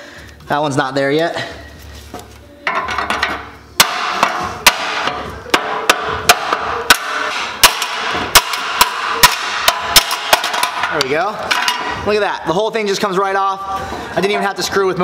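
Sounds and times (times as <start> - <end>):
hammer striking metal: 2.7 - 12.0.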